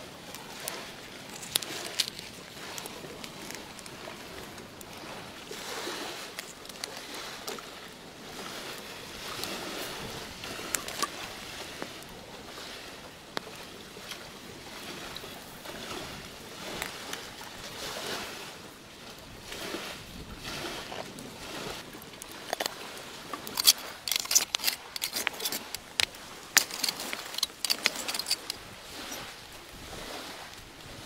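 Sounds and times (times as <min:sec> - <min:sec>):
banana leaves rustling and crinkling: 0:00.0 - 0:07.5.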